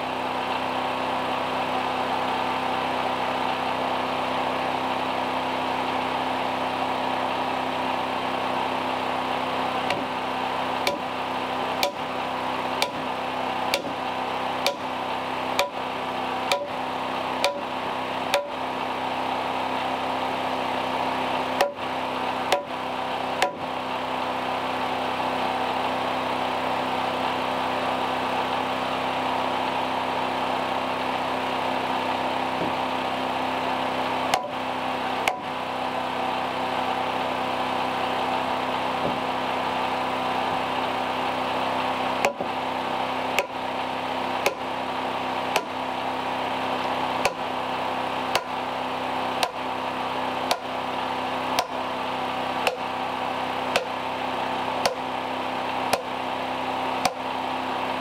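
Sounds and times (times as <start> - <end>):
steady hum: 4.7 - 28.4, 29.7 - 58.0
hammer striking wood: 9.9 - 10.1, 10.8 - 11.1, 11.8 - 12.0, 12.8 - 13.1, 13.7 - 14.0, 14.6 - 14.9, 15.6 - 15.8, 16.5 - 16.8, 17.4 - 17.7, 18.3 - 18.6, 21.6 - 21.8, 22.5 - 22.7, 23.4 - 23.6, 34.3 - 34.6, 35.2 - 35.5, 42.2 - 42.5, 43.4 - 43.6, 44.4 - 44.6, 45.5 - 45.8, 47.2 - 47.4, 48.3 - 48.6, 49.4 - 49.6, 50.5 - 50.7, 51.5 - 51.8, 52.6 - 52.9, 53.7 - 54.0, 54.8 - 55.0, 55.9 - 56.1, 57.0 - 57.2.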